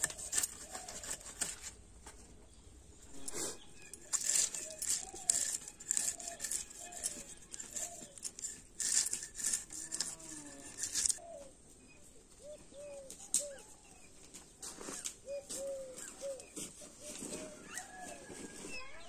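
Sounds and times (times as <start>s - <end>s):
fish scales scraping on blade: 3.1s - 11.2s.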